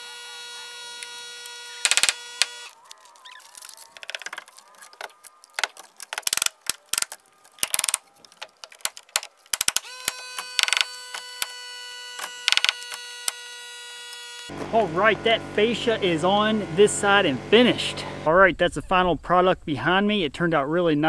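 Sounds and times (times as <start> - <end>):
nail gun firing: 1.8 - 2.6, 9.2 - 11.6, 12.2 - 13.4
air compressor whining: 9.6 - 18.3.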